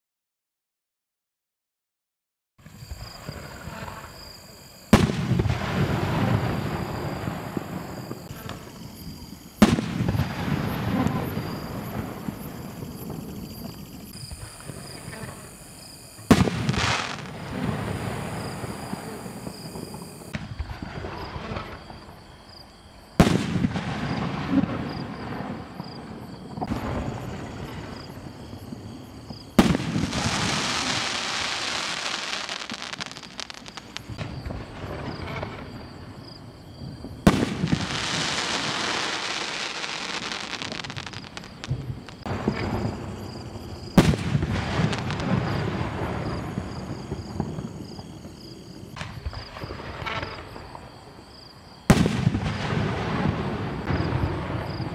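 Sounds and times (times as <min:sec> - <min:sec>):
firework crackle: 0:02.6 - 0:22.1, 0:26.6 - 0:35.9, 0:37.0 - 0:50.9, 0:51.9 - 0:54.9
rising firework tails: 0:02.6 - 0:22.2, 0:26.6 - 0:35.9.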